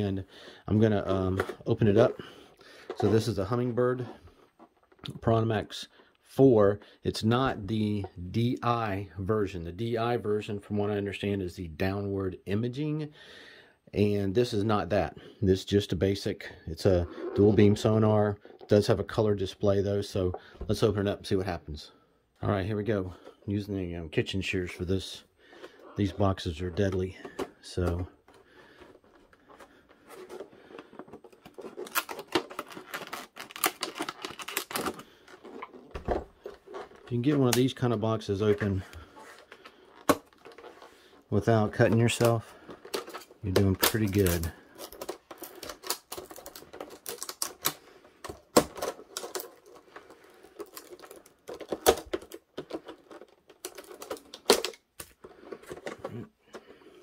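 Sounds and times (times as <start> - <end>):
shears snipping plastic packaging: 41.8 - 49.8.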